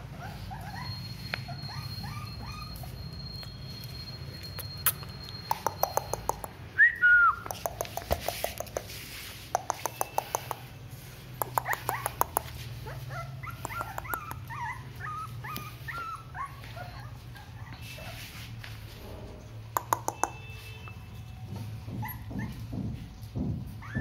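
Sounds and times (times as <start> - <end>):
puppies whimpering and squeaking: 0.0 - 6.7, 7.4 - 24.0
sharp clicks: 4.6 - 6.6, 7.4 - 8.9, 9.5 - 10.7, 11.4 - 12.5, 19.8 - 20.4.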